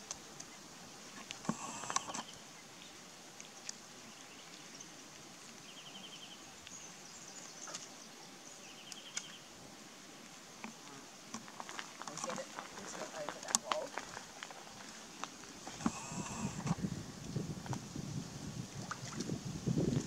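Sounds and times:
faint high hiss: 0:00.0 - 0:19.8
insect trilling: 0:00.6 - 0:05.0, 0:10.4 - 0:16.9
small knocks and rustles: 0:10.6 - 0:16.0.

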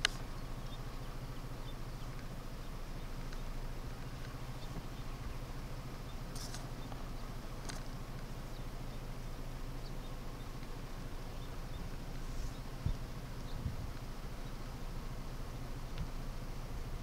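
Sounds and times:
low background hum: 0:00.0 - 0:17.0
sharp clicks: 0:06.3 - 0:07.0.

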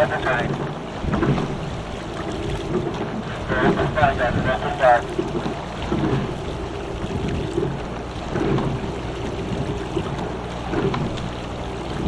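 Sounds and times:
oar and sliding seat noise: 0:00.0 - 0:12.0
water running along hull: 0:00.0 - 0:12.0.

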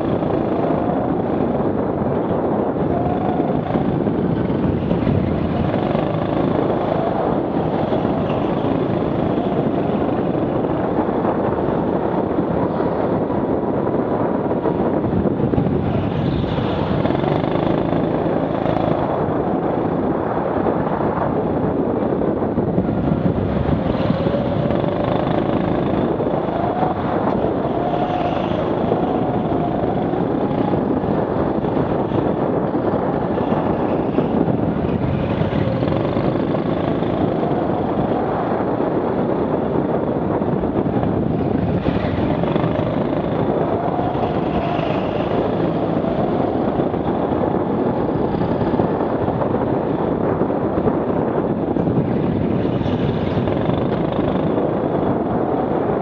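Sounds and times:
steady rushing noise: 0:00.0 - 0:56.0
go-kart motor running flat out: 0:24.0 - 0:30.8.

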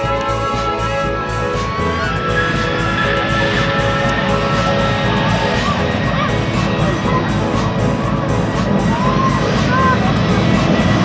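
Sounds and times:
background music: 0:00.0 - 0:11.0
jet engines rumbling: 0:00.0 - 0:11.0
children shouting: 0:01.5 - 0:07.5, 0:08.8 - 0:10.4.

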